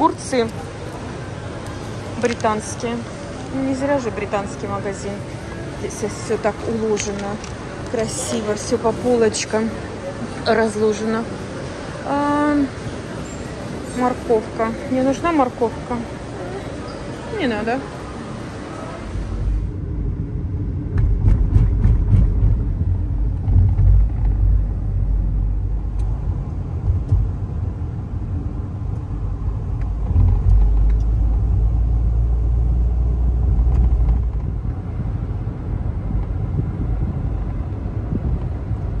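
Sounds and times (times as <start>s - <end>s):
car engine and road rumble: 18.0s - 39.0s.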